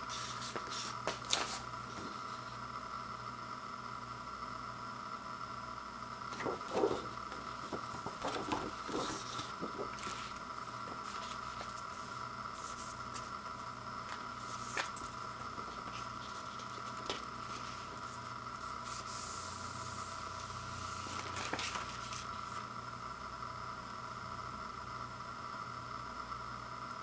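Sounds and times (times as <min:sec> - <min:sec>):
paper sleeve rustling: 0:00.0 - 0:02.4, 0:06.3 - 0:19.1, 0:20.9 - 0:22.6
record sliding hiss: 0:00.0 - 0:02.7, 0:06.2 - 0:22.8
steady background hum: 0:00.0 - 0:27.0.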